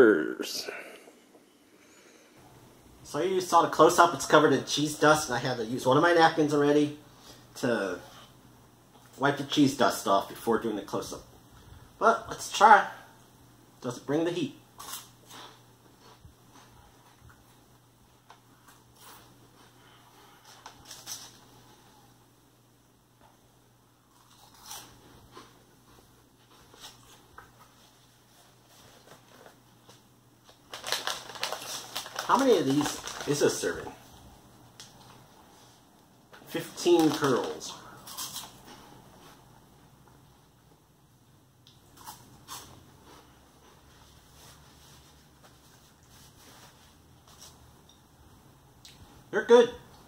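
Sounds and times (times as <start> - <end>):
cheese curls crunching: 24.1 - 25.5, 30.4 - 34.0, 36.5 - 38.6
person chewing crunchy snack: 24.1 - 25.6
paper napkin rustling: 26.4 - 34.1.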